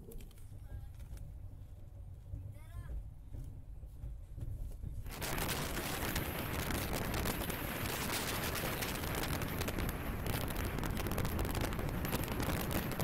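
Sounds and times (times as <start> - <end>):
low rumble of moving train: 0.0 - 13.0
loud rushing and rattling: 5.1 - 13.0.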